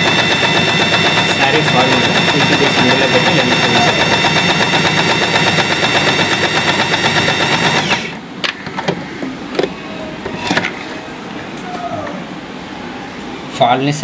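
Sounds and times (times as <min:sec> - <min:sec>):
sewing machine running: 0:00.0 - 0:08.2.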